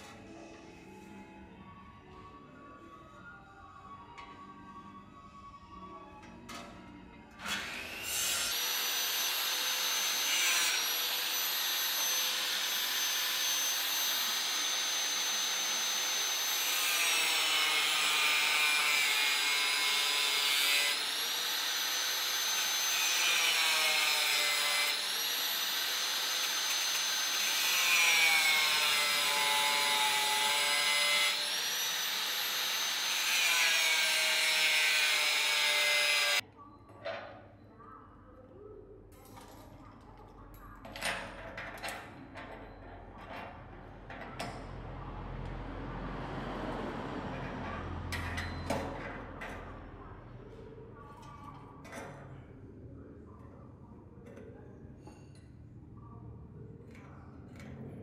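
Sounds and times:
angle grinder cutting steel: 7.4 - 36.4.

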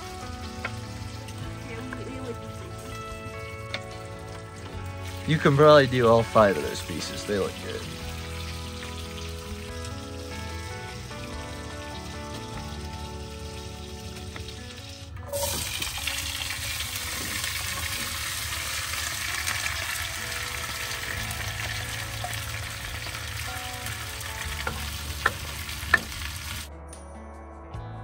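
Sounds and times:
potatoes sizzling in frying pan: 0.0 - 26.7
spatula clicking against pan: 24.6 - 26.2.

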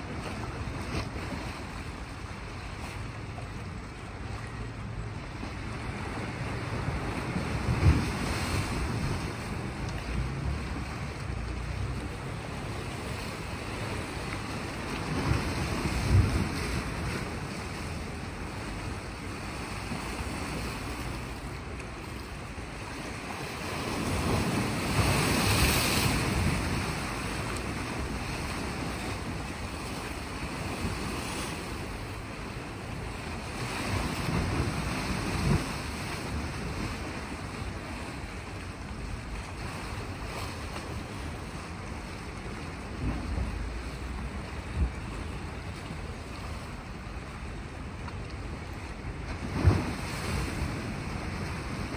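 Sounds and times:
waves washing against rocks: 0.0 - 51.9
wind buffeting microphone: 5.2 - 21.0.

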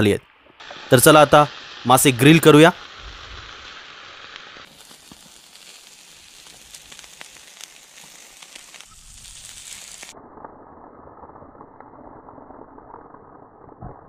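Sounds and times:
small crackles and pops: 0.2 - 14.0
fish sizzling on a grill: 0.6 - 10.2.

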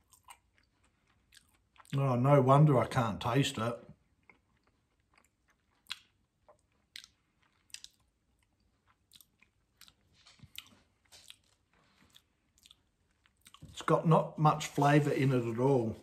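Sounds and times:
faint chewing: 0.0 - 2.0, 3.8 - 13.8.

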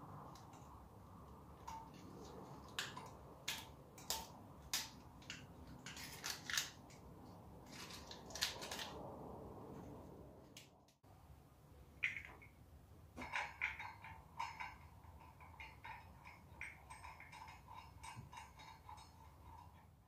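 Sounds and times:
metallic clicks and scrapes: 0.1 - 9.1, 13.2 - 20.0.

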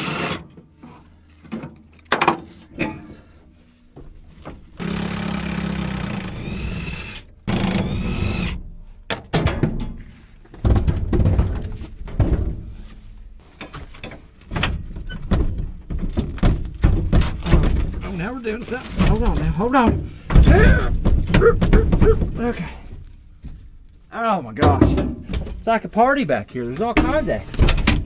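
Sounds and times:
metal clunks and knocks: 1.4 - 3.2, 9.1 - 18.3, 18.9 - 23.7, 24.6 - 25.8, 26.8 - 28.0
impact wrench whining: 4.8 - 8.7.

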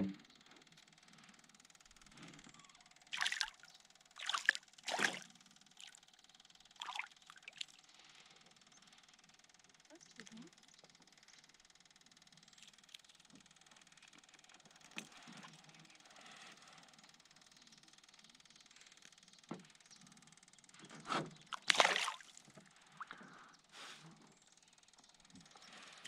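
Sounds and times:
water sloshing around canoe: 3.1 - 3.6, 4.2 - 6.0, 6.8 - 7.7, 21.0 - 22.5.

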